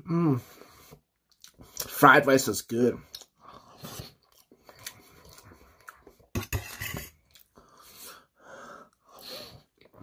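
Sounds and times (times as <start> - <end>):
chewing and mouth noises: 1.1 - 2.0, 3.0 - 6.3
fork scraping on metal plate: 6.4 - 7.1.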